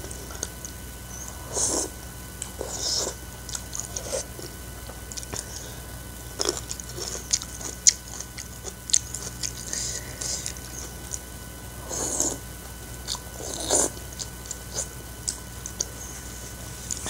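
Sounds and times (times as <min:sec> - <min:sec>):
person slurping noodles: 0:02.6 - 0:03.2, 0:11.8 - 0:12.4, 0:13.1 - 0:14.0
wet chewing mouth smacks: 0:06.4 - 0:11.3.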